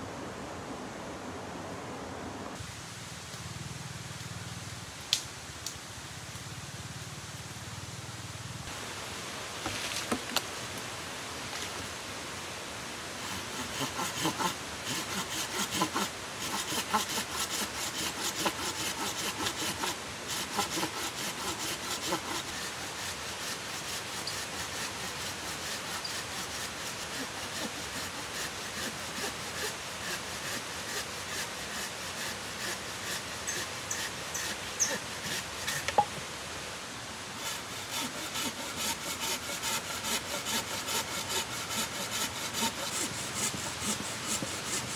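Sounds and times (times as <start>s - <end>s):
hand saw cutting log: 13.2s - 36.1s, 37.4s - 44.9s.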